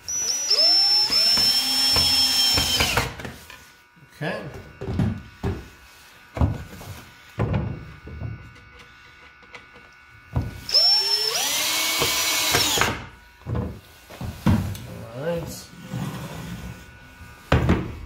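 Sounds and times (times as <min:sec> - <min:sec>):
cordless drill motor whining: 0:00.0 - 0:04.0, 0:04.6 - 0:14.1.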